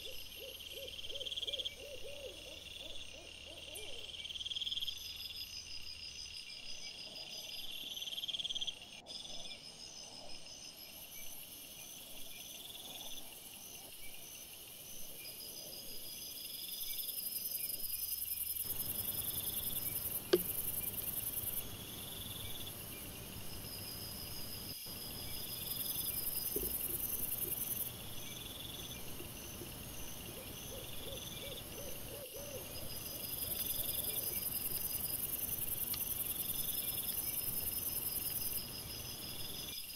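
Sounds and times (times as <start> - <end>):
crickets chirping: 0.0 - 39.9
sharp click: 20.3 - 20.6.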